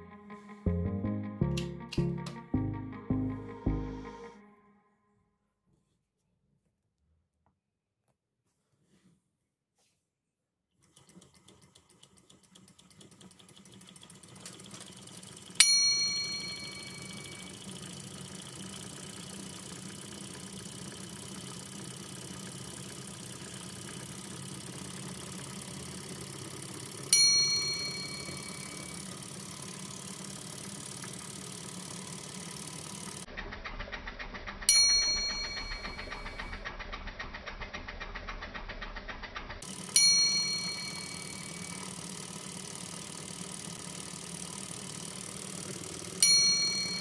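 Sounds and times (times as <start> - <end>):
small engine ticking and running: 10.8 - 47.0
sharp metallic rings: 15.6 - 17.6, 27.1 - 29.1, 34.7 - 36.5, 40.0 - 41.9, 46.2 - 47.0.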